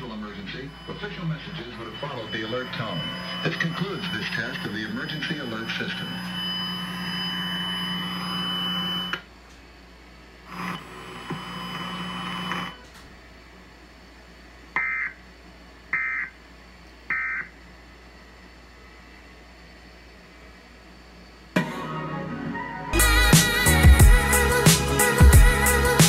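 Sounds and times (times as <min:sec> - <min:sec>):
digital data tone bursts: 0:00.0 - 0:09.2
buzzy hum with high whine: 0:00.0 - 0:26.0.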